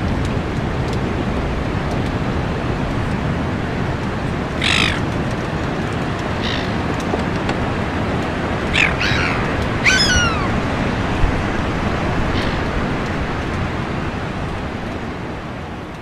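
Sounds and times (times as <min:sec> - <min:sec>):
gulls calling: 0:04.5 - 0:05.3, 0:06.0 - 0:07.7, 0:08.4 - 0:13.0.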